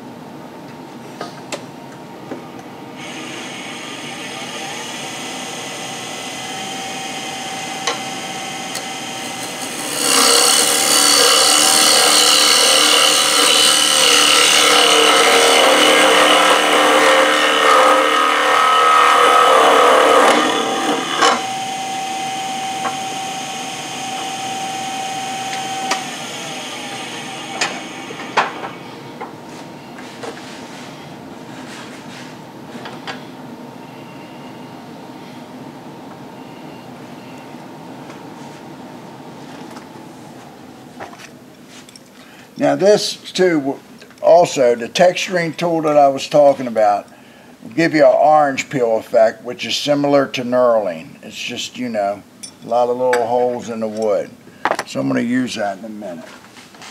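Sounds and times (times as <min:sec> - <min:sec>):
wood lathe motor running: 0:03.0 - 0:29.3
tool scraping spinning wood: 0:07.8 - 0:28.9.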